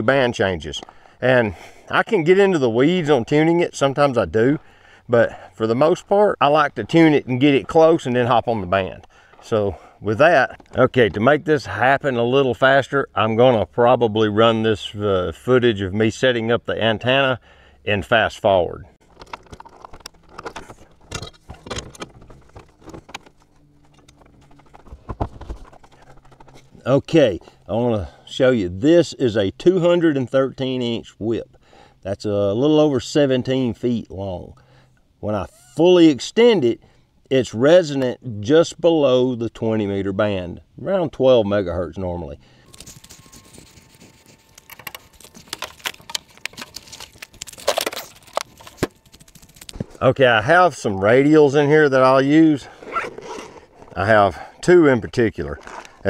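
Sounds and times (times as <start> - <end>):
gear clicking and rattling: 19.0 - 27.7, 42.7 - 50.0
footsteps crunching on gravel: 55.4 - 56.0.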